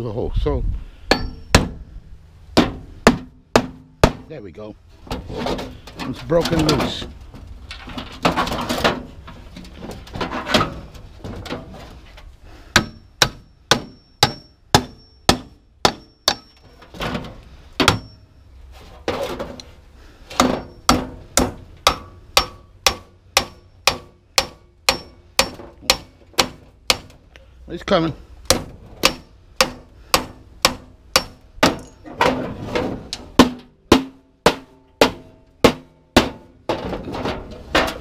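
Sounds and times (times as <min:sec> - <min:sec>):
hammer striking sheet metal: 0:20.4 - 0:27.1.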